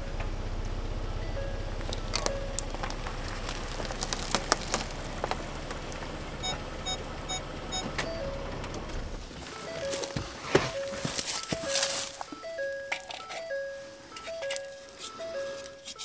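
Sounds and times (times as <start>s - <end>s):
car engine idling: 0.0s - 16.0s
electronic door chimes: 6.4s - 8.8s, 9.4s - 16.0s.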